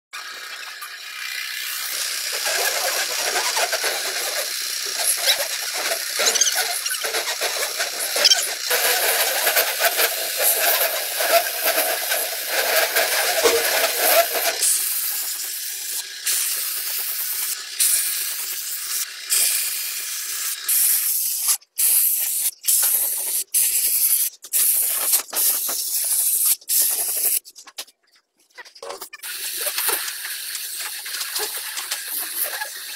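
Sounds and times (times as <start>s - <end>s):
paint spray gun hissing: 0.5s - 27.4s, 29.2s - 32.9s.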